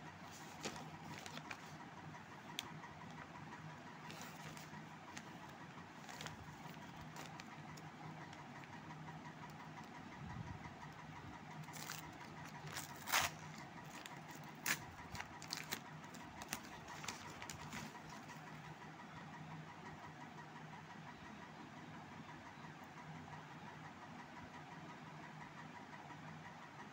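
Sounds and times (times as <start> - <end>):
steady low hum: 0.0 - 26.9
paper envelope crinkling and tearing: 0.3 - 1.8, 4.0 - 7.9, 11.6 - 18.4.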